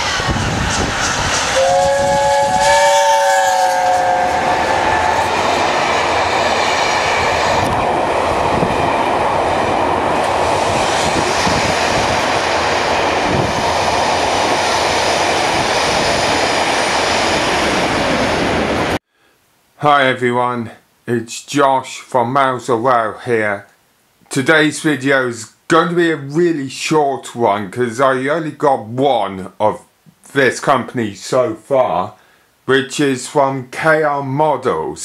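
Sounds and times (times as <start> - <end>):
train wheels rumbling on rails: 0.0 - 19.0
train horn blast: 1.5 - 7.7.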